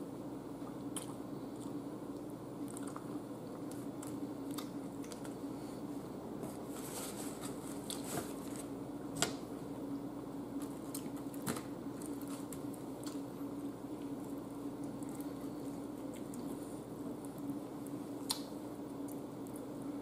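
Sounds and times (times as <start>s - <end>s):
person chewing: 0.6s - 5.5s, 10.6s - 19.7s.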